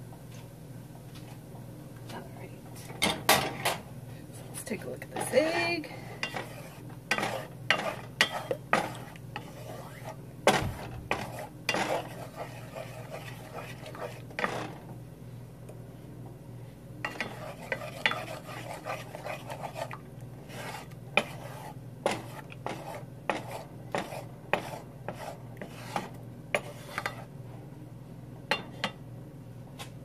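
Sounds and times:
spatula scraping frying pan: 4.8 - 14.8, 17.0 - 27.3.

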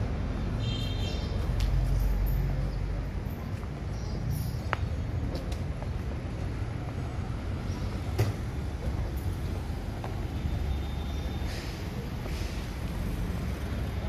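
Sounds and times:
vehicle engines rumbling: 0.0 - 14.0.

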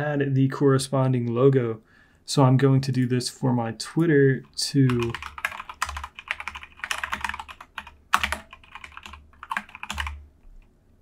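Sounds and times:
typing on computer keyboard: 4.9 - 10.7.

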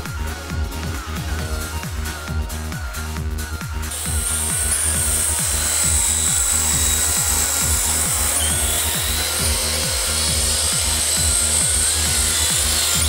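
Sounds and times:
electronic music with kick drums: 0.0 - 13.0
high steady whine: 3.9 - 13.0.

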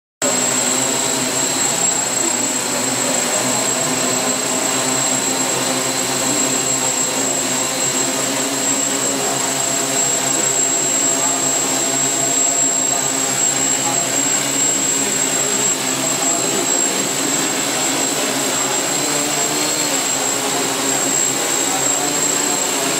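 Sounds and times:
drone propellers whirring: 0.2 - 22.9.

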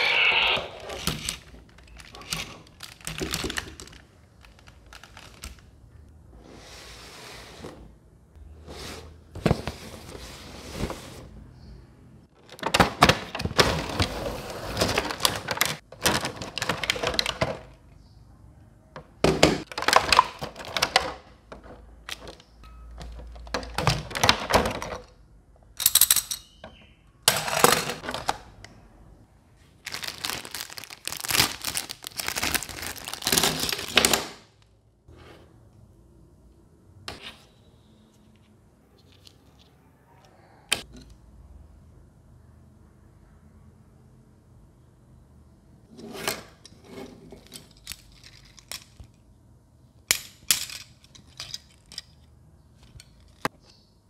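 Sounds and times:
plastic packaging crinkling: 1.3 - 5.7, 29.8 - 34.3.

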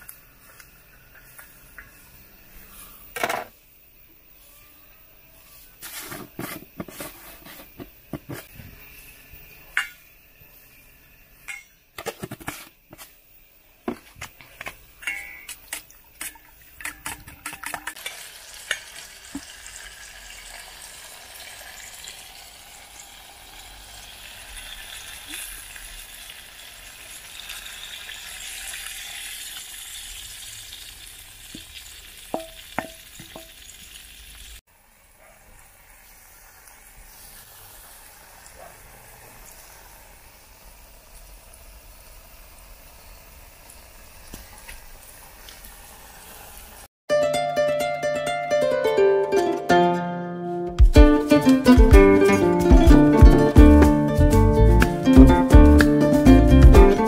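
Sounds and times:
eggs sizzling in pot: 0.0 - 4.4, 5.4 - 46.9
wooden spoon stirring: 5.8 - 8.5
spoon beating eggs in steel bowl: 14.6 - 18.1
knocks on metal pot: 32.3 - 33.5.

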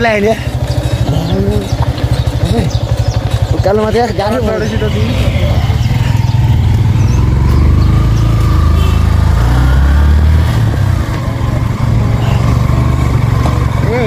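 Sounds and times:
vehicle engine rumbling: 0.0 - 14.0.

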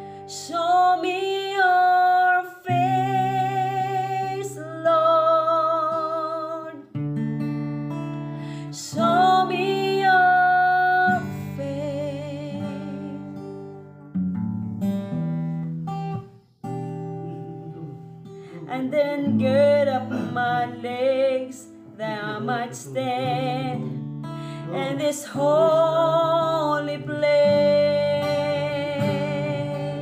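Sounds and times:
woman singing: 0.0 - 6.9, 8.6 - 13.7, 18.6 - 30.0
acoustic guitar strumming: 0.0 - 30.0.

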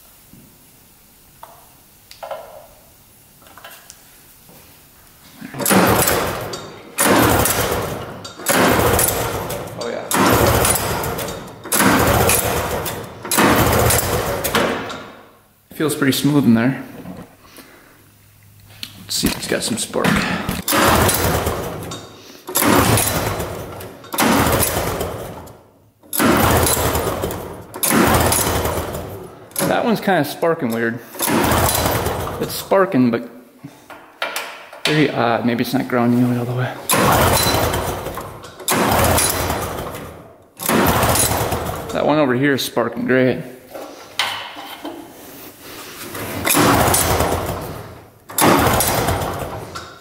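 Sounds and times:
engine pull-start rope pulls: 5.6 - 15.0, 20.5 - 29.9, 31.1 - 32.6, 36.9 - 42.0, 46.0 - 49.9.

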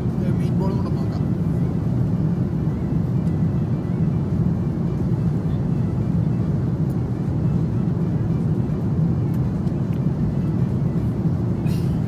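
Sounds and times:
airliner cabin engine rumble: 0.0 - 12.0.

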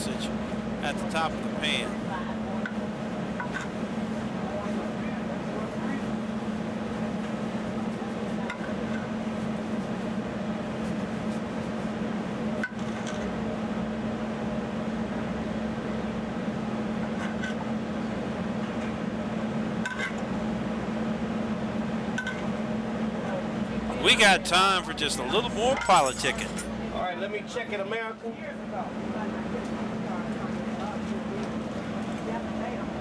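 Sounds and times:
kitchen equipment humming: 23.7 - 26.9.

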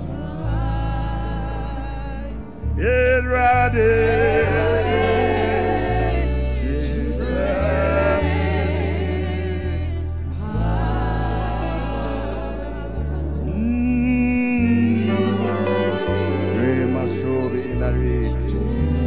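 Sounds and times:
man singing into microphone: 0.0 - 8.3, 13.4 - 19.0
backing music bass and chords: 0.0 - 19.0.

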